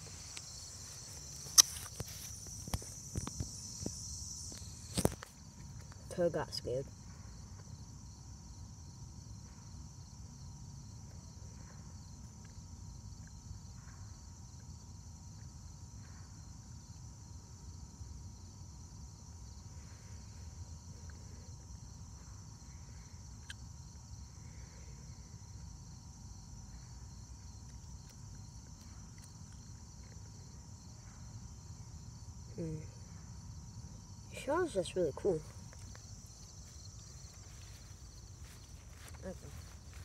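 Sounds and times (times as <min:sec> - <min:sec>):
insects chorus: 0:00.0 - 0:40.0
sharp click: 0:01.4 - 0:02.8.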